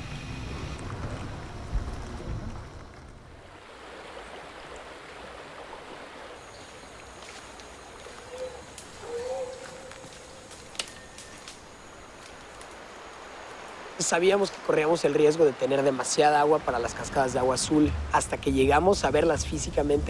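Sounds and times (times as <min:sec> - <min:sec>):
vehicle engine rumble: 0:00.0 - 0:03.6
rainforest hiss: 0:03.4 - 0:20.0
faint high insect buzz: 0:05.6 - 0:14.0.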